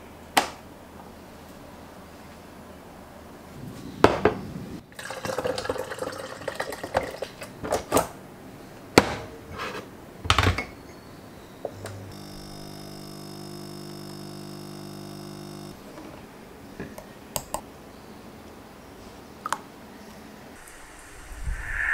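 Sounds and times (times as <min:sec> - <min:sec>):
espresso machine pump humming: 0:12.1 - 0:16.2.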